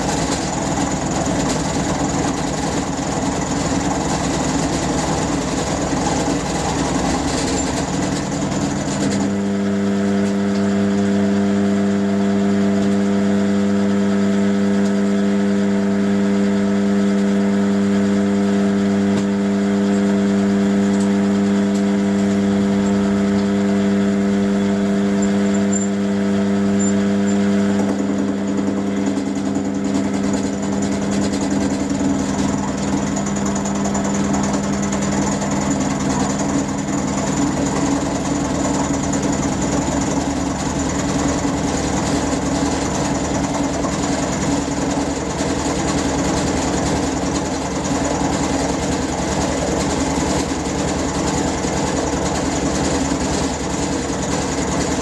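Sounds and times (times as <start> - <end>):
milling machine cutting steel: 0.0 - 11.0, 24.4 - 55.0.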